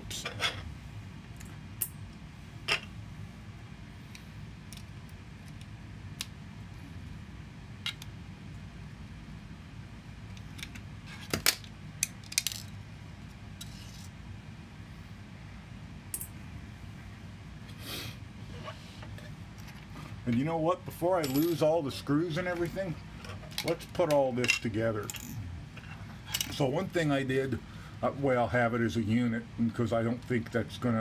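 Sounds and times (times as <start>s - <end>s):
faint steady low hum: 0.0s - 31.0s
small metal parts clinking: 11.4s - 12.8s, 21.2s - 21.7s, 24.4s - 26.6s.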